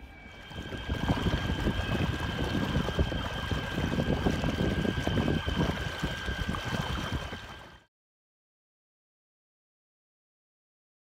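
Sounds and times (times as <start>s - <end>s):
wind buffeting microphone: 0.0s - 7.8s
electric outboard motor whine: 0.0s - 7.9s
propeller wash in water: 0.0s - 7.9s.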